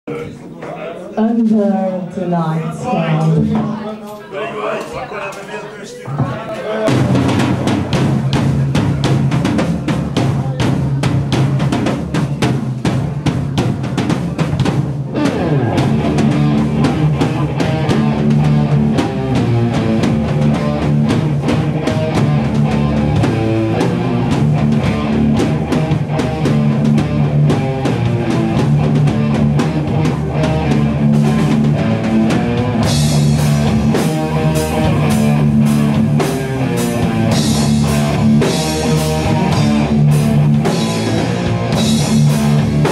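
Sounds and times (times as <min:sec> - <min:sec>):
drum kit with heavy bass drum: 0:06.1 - 0:42.9
distorted electric guitar riffs: 0:14.7 - 0:42.9.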